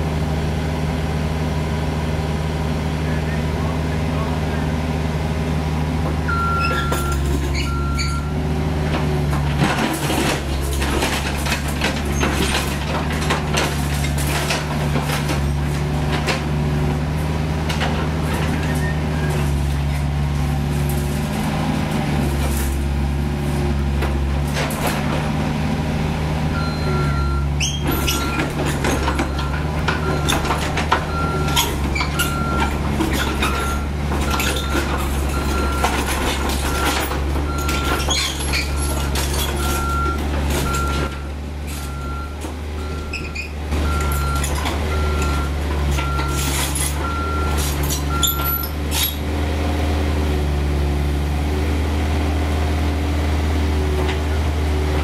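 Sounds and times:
excavator diesel engine running: 0.0s - 55.0s
clanks and knocks from working arm: 8.9s - 16.5s, 27.6s - 41.2s.

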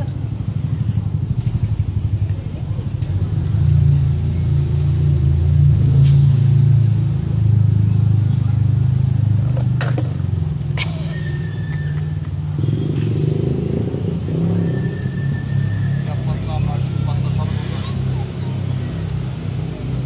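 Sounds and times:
vehicle engine rumble: 0.0s - 20.0s
plastic bottle clattering on paving: 9.4s - 10.2s.

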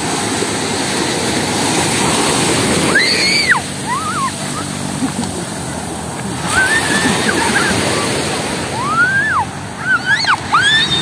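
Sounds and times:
ocean surf washing: 0.0s - 11.0s
high-pitched voices squealing: 2.9s - 4.7s, 6.4s - 11.0s.

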